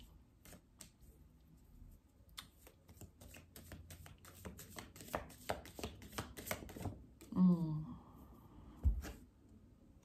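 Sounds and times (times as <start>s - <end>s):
cards being shuffled: 0.4s - 1.0s, 2.4s - 7.0s.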